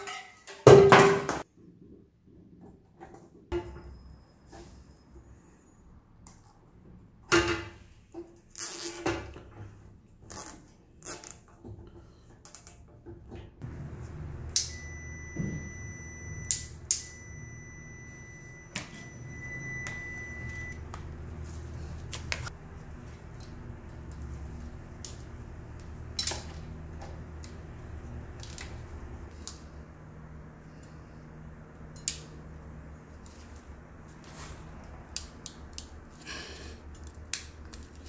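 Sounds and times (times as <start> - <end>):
steady low hum: 13.6 - 37.4
thin high tone: 14.4 - 20.8.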